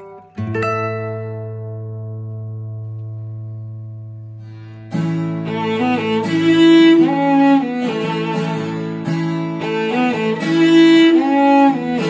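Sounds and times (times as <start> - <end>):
bowed strings playing melody: 0.0 - 12.0.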